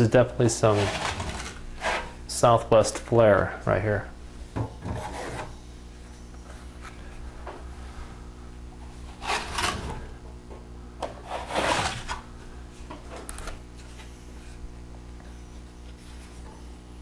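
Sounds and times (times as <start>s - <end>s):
steady low hum: 0.0s - 17.0s
drywall knife scraping wall: 0.6s - 2.2s, 4.8s - 5.6s, 9.2s - 10.1s, 11.2s - 12.2s.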